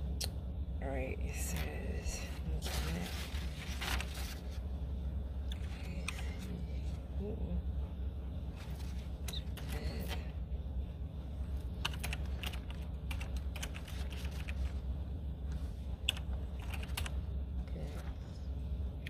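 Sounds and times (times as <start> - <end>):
steady low hum: 0.0 - 19.0
keyboard typing clicks: 11.8 - 14.6.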